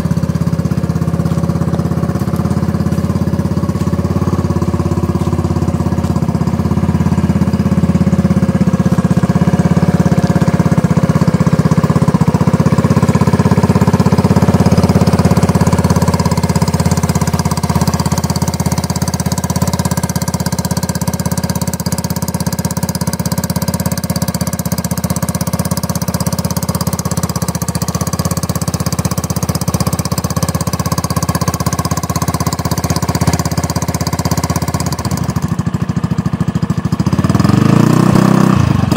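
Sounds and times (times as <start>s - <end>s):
engine idling with rough putter: 0.0s - 38.9s.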